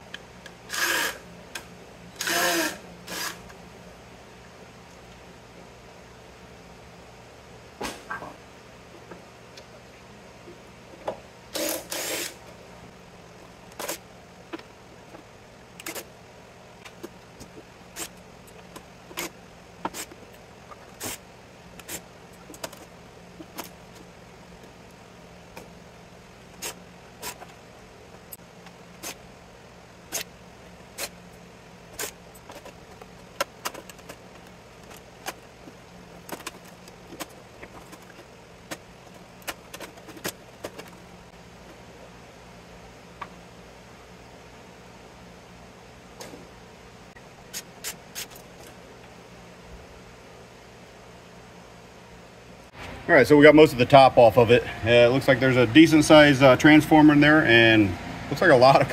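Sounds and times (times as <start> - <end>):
faint steady hum: 0.0 - 58.9
cordless drill spinning: 0.7 - 1.2, 2.2 - 3.4, 11.6 - 12.4.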